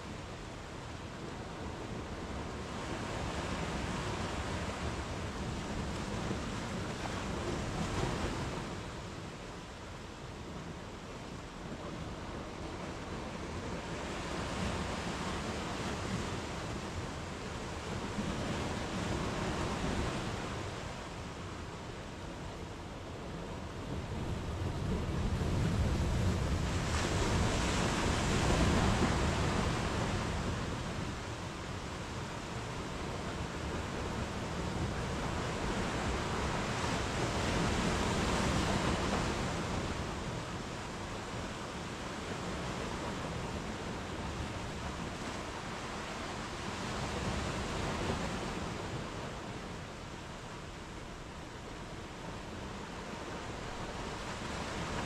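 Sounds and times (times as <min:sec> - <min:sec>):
waves breaking on shore: 0:00.0 - 0:55.0
sea waves breaking on sand: 0:24.5 - 0:50.9.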